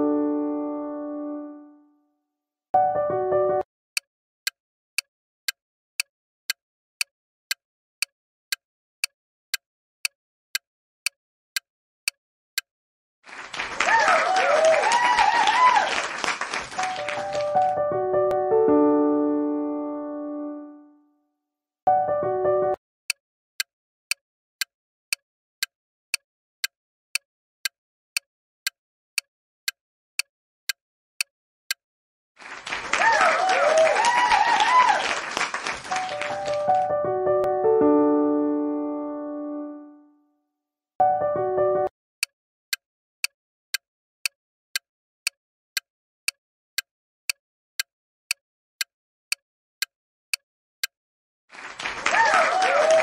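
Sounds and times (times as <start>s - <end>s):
keyboard chord: 0.0s - 2.0s, 2.8s - 3.6s, 16.8s - 21.1s, 21.9s - 22.8s, 36.0s - 40.2s, 41.0s - 41.9s
timer ticking clicks: 4.0s - 12.7s, 24.1s - 31.8s, 42.2s - 50.9s.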